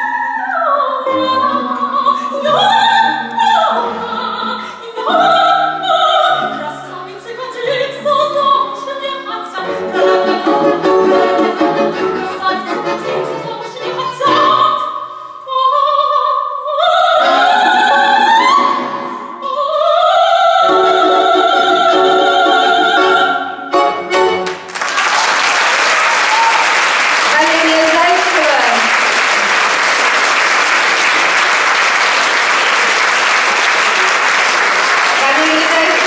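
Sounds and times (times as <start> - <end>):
woman singing classically: 0.0 - 23.5
balalaika ensemble strumming: 9.6 - 14.8, 20.7 - 24.8
audience applause: 24.4 - 36.0.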